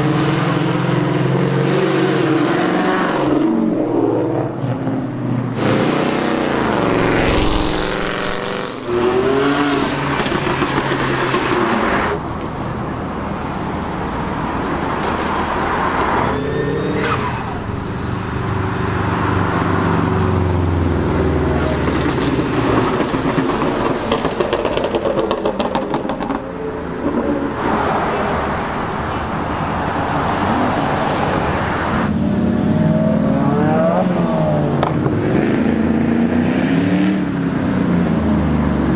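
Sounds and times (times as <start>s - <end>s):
cars accelerating past: 0.0s - 12.3s.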